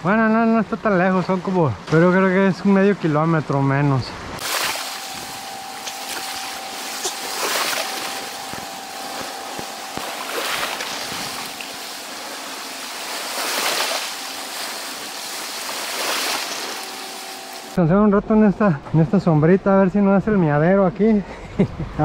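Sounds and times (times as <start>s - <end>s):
sea surf washing onto shore: 4.4s - 17.8s
faint steady tone: 4.6s - 12.4s.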